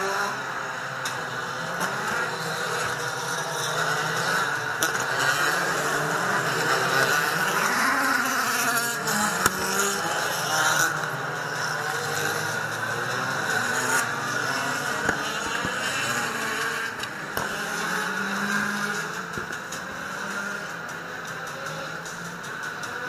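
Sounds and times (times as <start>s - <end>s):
racing car engines passing: 0.0s - 23.0s.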